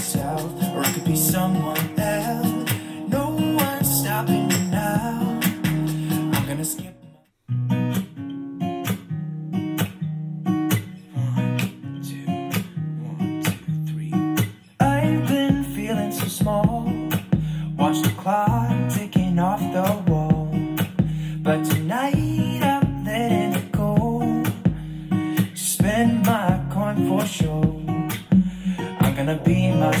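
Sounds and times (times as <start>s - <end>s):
bass and beat: 0.0s - 6.8s, 14.8s - 30.0s
acoustic guitar pop song on speaker: 0.0s - 30.0s.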